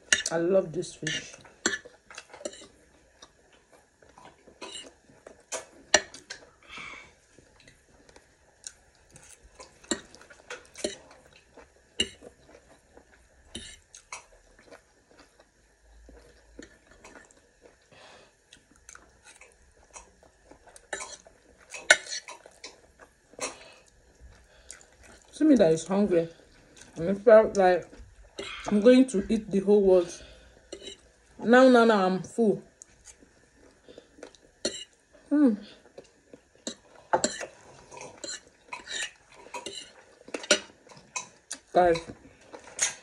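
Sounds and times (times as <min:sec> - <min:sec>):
soft chewing: 0:01.0 - 0:31.4, 0:32.3 - 0:43.0.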